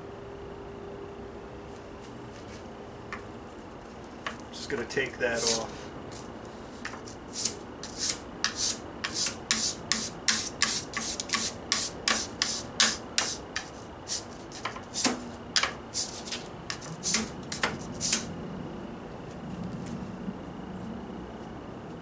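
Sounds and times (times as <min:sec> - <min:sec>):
plane iron scraping on sandpaper: 0:05.3 - 0:05.8, 0:06.6 - 0:18.3.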